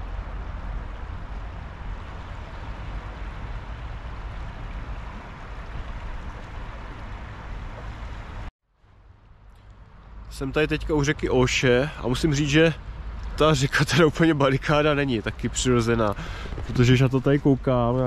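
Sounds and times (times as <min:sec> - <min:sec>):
wind buffeting microphone: 0:12.9 - 0:18.0.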